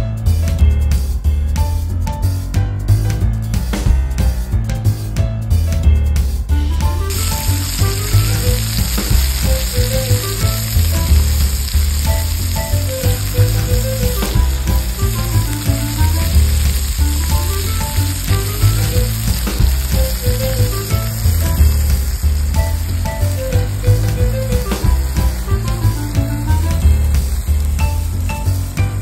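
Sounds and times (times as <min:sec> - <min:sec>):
background music with bass line: 0:00.0 - 0:29.0
meat sizzling in a pan: 0:06.7 - 0:29.0.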